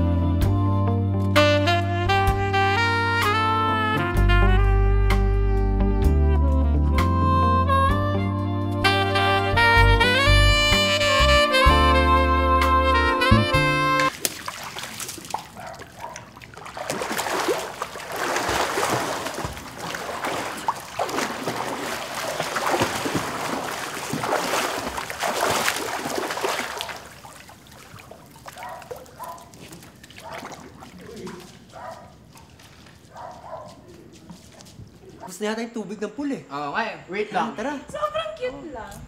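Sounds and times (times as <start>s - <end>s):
faint water lapping: 14.0s - 35.3s
pool water splashing and sloshing: 14.0s - 35.3s.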